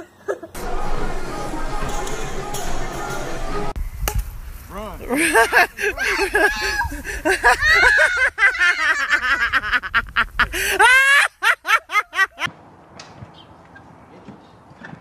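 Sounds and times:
faint outdoor background: 0.0 - 15.0
people laughing hard: 5.1 - 12.5.

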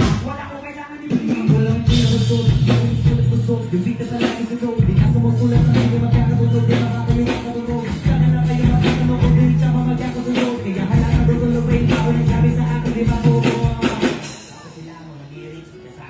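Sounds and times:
person rapping: 0.0 - 14.3
drum beat: 1.1 - 14.5
deep bass line: 1.9 - 4.2, 4.8 - 14.0.

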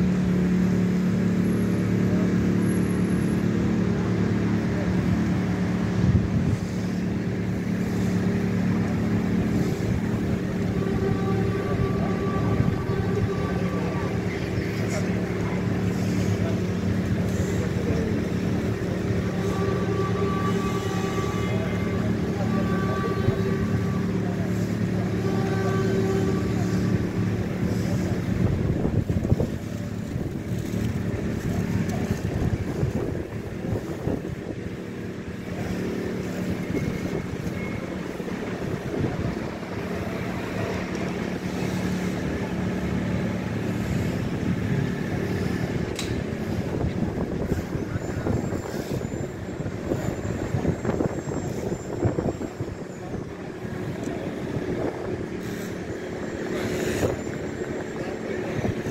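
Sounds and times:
road traffic hum: 0.0 - 58.9.

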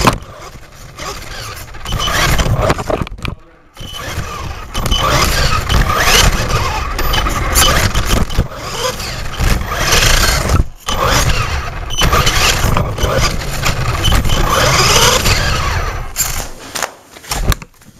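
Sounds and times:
tyre and ground noise: 0.0 - 17.9
electric motor whine: 3.8 - 16.2.

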